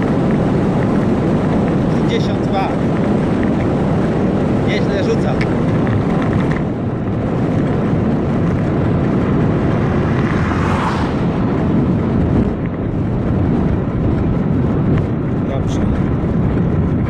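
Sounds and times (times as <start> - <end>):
tyre noise on asphalt: 0.0 - 17.0
wind rushing over microphone: 0.0 - 17.0.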